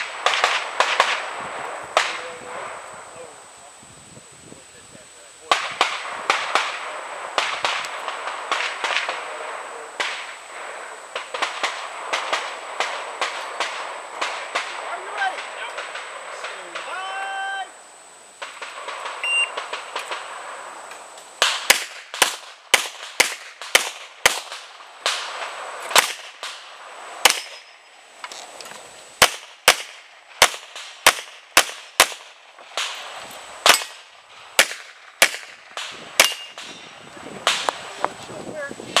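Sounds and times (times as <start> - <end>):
pistol shots: 0.0 - 2.6, 5.5 - 16.9, 21.4 - 27.8, 29.2 - 37.9.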